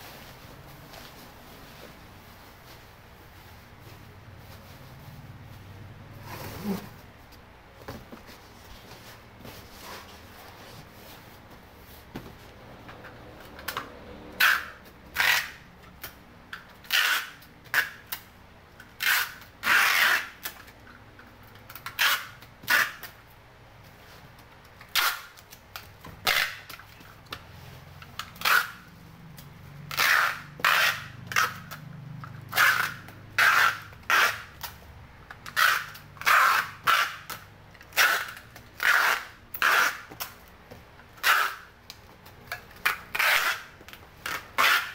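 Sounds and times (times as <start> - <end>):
packing tape rasping off roll: 14.4 - 16.2, 16.8 - 20.8, 21.6 - 23.2, 24.7 - 27.2, 28.1 - 40.5, 41.1 - 44.9.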